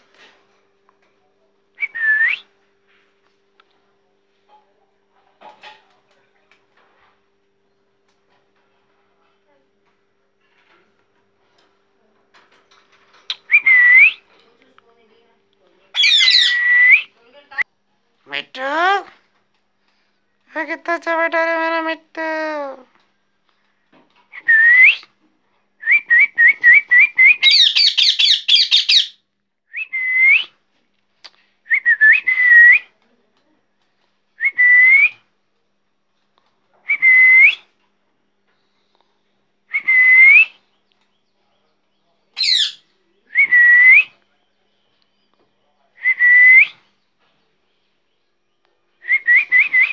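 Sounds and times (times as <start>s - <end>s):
parakeet whistling: 16.0s - 17.0s, 27.3s - 29.2s, 42.4s - 42.8s.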